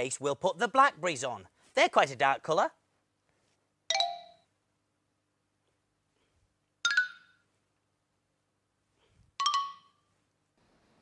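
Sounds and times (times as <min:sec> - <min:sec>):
bright chime ding: 0:03.9 - 0:04.4.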